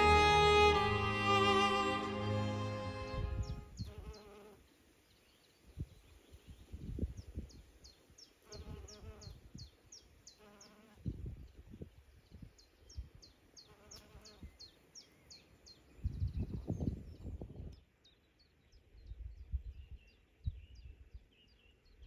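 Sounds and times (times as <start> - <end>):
wind rumbling on microphone: 2.8 - 4.2, 5.6 - 8.0, 11.0 - 13.3, 15.9 - 17.9, 18.7 - 22.0.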